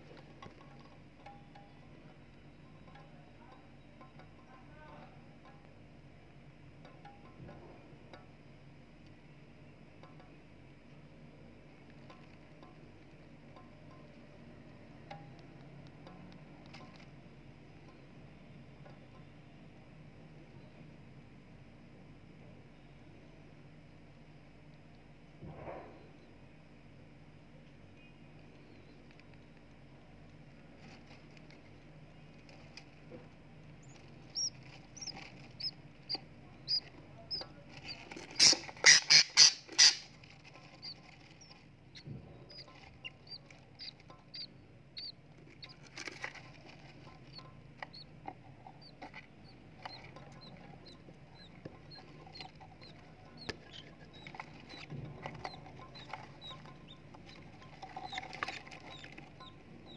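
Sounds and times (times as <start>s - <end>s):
chicks peeping: 30.5s - 59.9s
rustling: 30.6s - 59.9s
loud harsh calls: 38.4s - 40.1s.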